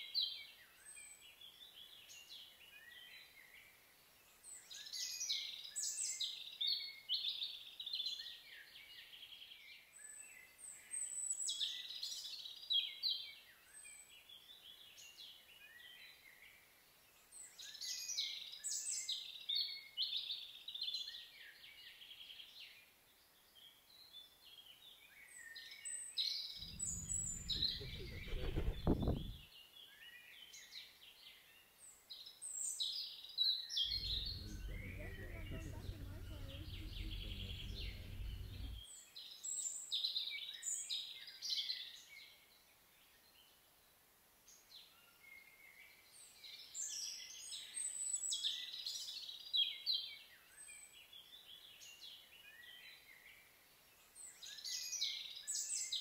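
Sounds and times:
low rumble: 26.6s - 29.4s, 33.9s - 38.8s
songbirds chirping and trilling: 26.6s - 29.4s, 33.8s - 38.9s.

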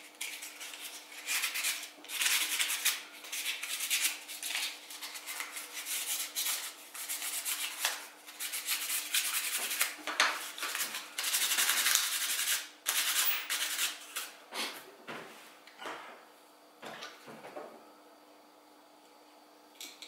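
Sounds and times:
hand sanding with sandpaper: 0.0s - 14.4s.

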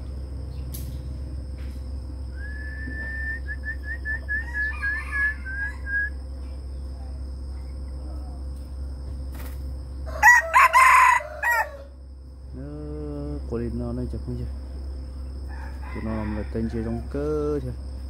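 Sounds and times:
high whistle: 2.3s - 6.2s.

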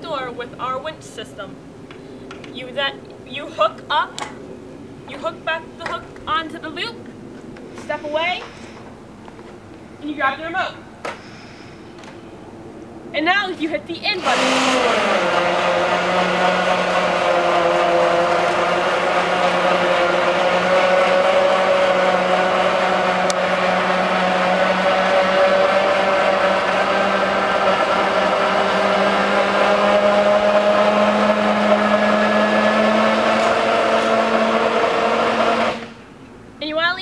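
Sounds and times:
electric winch motor whining: 14.2s - 36.1s.

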